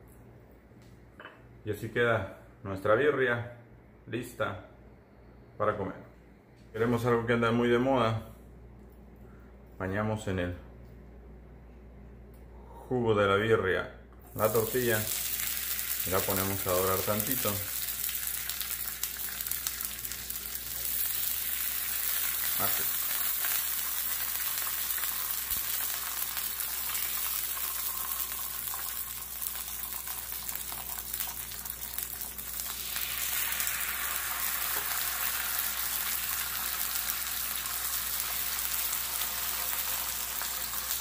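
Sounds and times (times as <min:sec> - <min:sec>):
tortillas sizzling in a skillet: 0:14.4 - 0:41.0.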